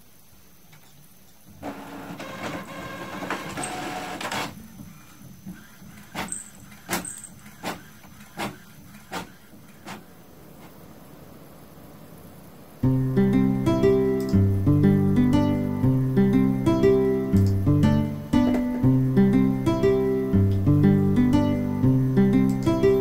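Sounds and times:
printer sharp clicks: 1.6 - 4.6, 6.0 - 10.1
printer motors whirring: 1.6 - 10.8.

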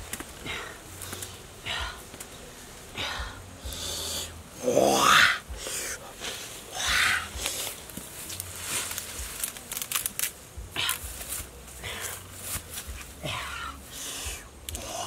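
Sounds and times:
leaves and twigs rustling: 0.0 - 15.0
loud breathy sound: 2.9 - 7.8.

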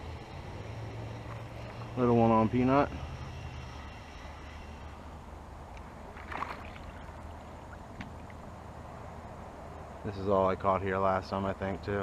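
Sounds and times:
fish splashing: 6.0 - 8.5
water sloshing around kayak: 6.1 - 8.5.

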